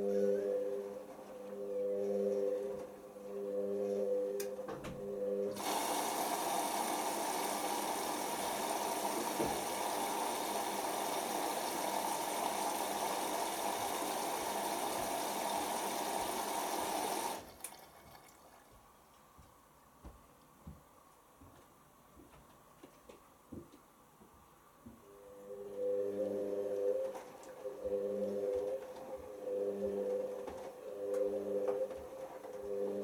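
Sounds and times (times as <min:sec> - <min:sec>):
washing machine motor whine: 0:05.0 - 0:17.6, 0:25.7 - 0:33.0
water rushing into machine: 0:05.6 - 0:18.5.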